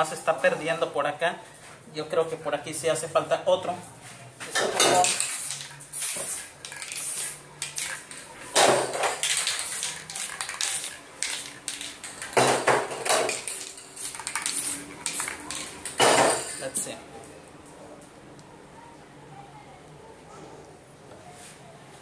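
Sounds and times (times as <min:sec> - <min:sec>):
spray-paint can hissing: 0:05.0 - 0:08.2, 0:09.2 - 0:12.0, 0:13.3 - 0:15.7.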